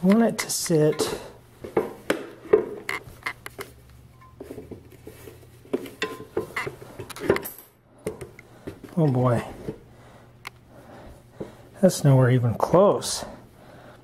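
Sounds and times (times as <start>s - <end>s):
metal bike parts clinking: 5.9s - 7.8s.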